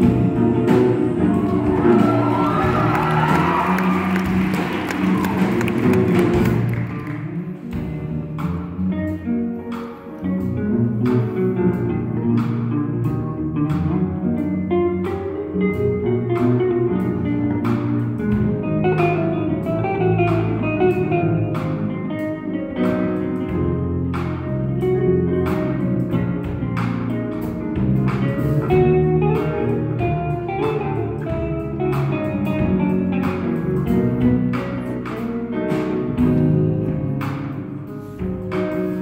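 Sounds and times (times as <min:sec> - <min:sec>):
drum and cymbal hits: 0:00.0 - 0:08.8
live band playing: 0:00.0 - 0:39.0.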